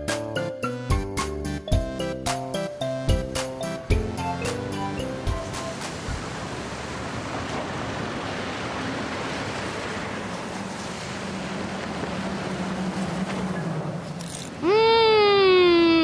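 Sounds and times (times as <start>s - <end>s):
steady rushing noise: 4.2s - 14.2s.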